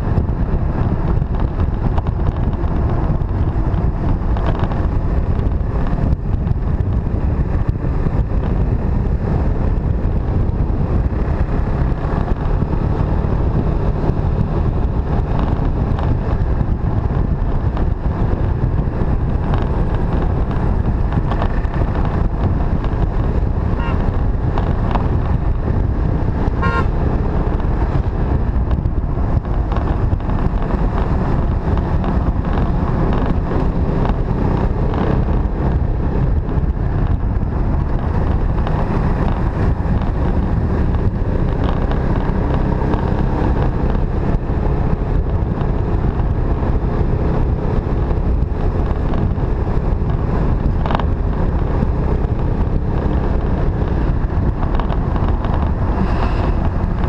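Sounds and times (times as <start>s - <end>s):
motorcycle engine running: 0.0s - 57.0s
wind on microphone: 0.0s - 57.0s.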